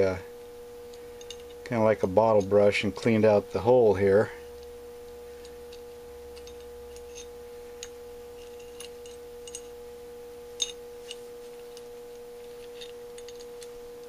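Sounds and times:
steady humming tone: 0.0 - 14.0
small metal parts clicking: 0.9 - 1.6, 5.4 - 9.7, 10.6 - 13.8.

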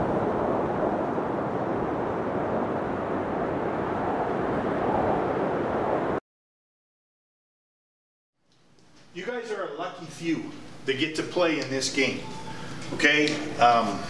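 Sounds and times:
wind buffeting microphone: 0.0 - 6.2.

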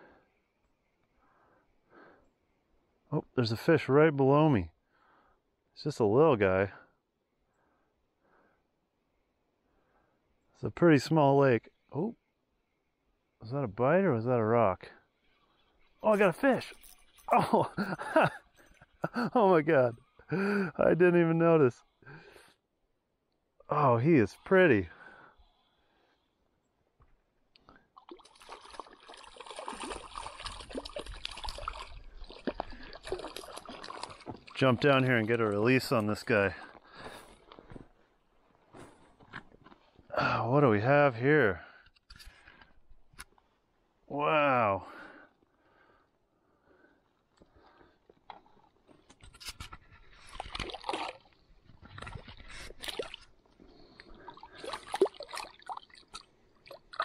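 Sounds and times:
fish splashing in water: 28.0 - 34.6, 50.3 - 51.4, 54.3 - 57.0.

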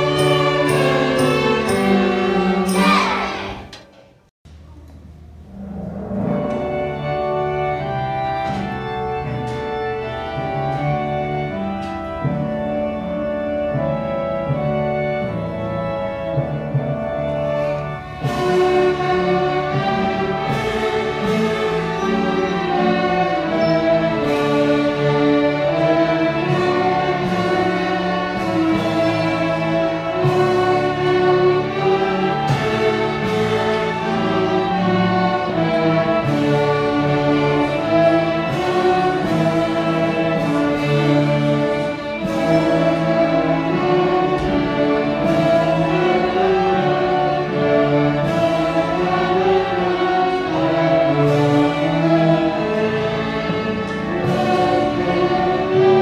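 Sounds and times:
string orchestra playing bowed notes: 0.0 - 3.8, 5.5 - 56.0.

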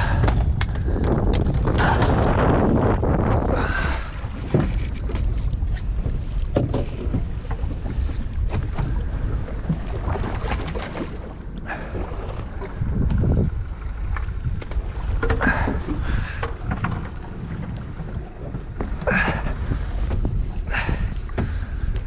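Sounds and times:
wind rumbling on microphone: 0.0 - 22.0.

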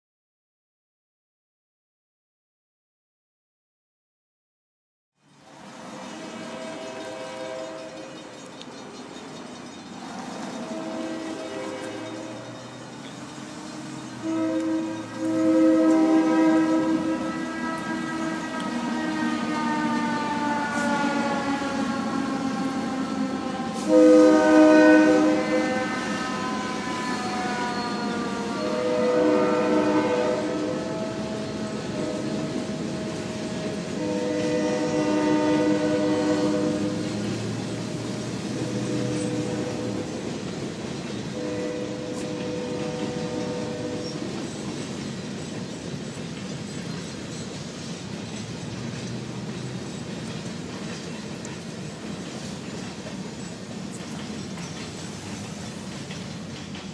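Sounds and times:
passing train rumbling: 5.2 - 56.9
locomotive air horn blast: 5.9 - 8.3, 10.4 - 12.6, 13.5 - 37.4, 38.4 - 40.3, 41.3 - 44.3.

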